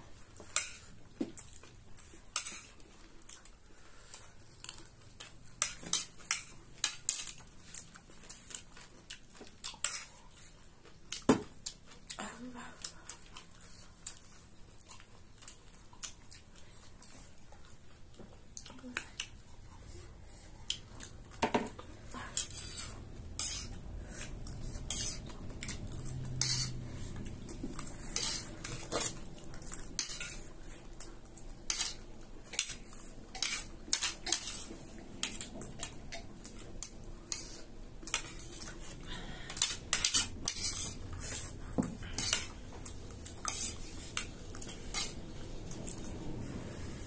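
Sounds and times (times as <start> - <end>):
metal spoons scraping plates: 26.4 - 26.8.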